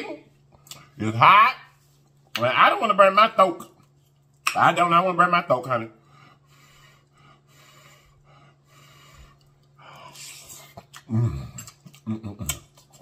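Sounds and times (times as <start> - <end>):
soft breaths: 6.0 - 10.8
humming with mouth full: 9.2 - 12.7.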